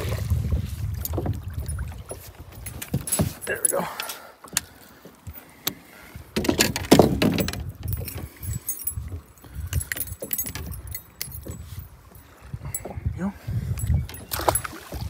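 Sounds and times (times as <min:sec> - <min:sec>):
metal lure blades clinking: 0:07.4 - 0:12.9.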